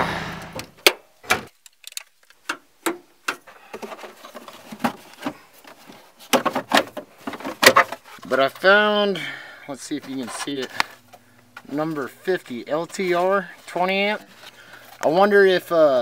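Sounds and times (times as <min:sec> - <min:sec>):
plastic and metal clicks: 0:00.6 - 0:03.9.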